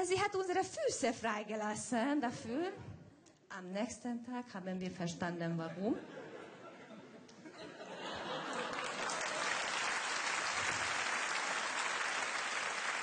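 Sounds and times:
audience laughter: 0:05.9 - 0:09.7
audience applauding: 0:08.2 - 0:13.0.

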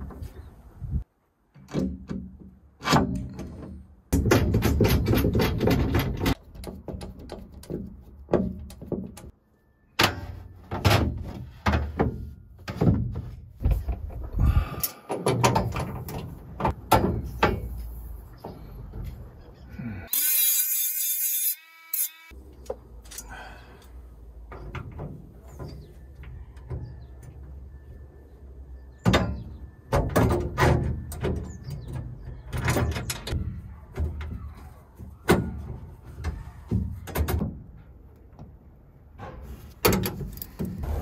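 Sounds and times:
metal clanks and knocks: 0:01.6 - 0:09.3, 0:10.0 - 0:19.2.

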